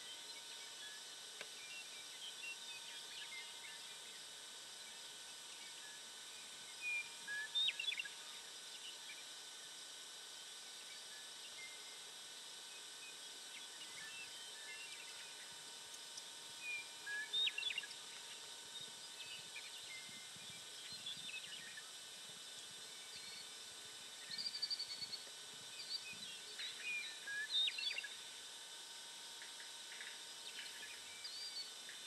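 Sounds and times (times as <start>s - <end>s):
steady outdoor hiss: 0.0s - 32.0s
small birds chirping: 6.7s - 8.2s, 13.0s - 21.9s, 24.2s - 28.2s.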